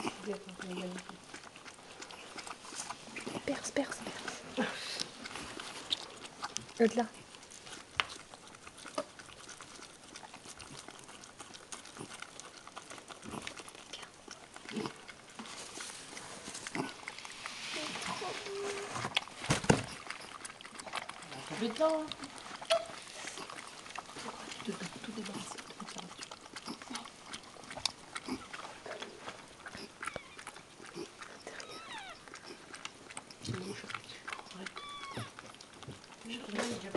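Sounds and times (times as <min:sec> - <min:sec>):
dog snorting: 0:00.0 - 0:36.9
dog snuffling and licking: 0:00.0 - 0:36.9
small wet clicks: 0:00.0 - 0:36.9
dog whining: 0:17.8 - 0:19.1, 0:22.6 - 0:23.0, 0:29.8 - 0:30.6, 0:31.3 - 0:32.5, 0:34.7 - 0:35.5
dog grunting: 0:17.8 - 0:32.8.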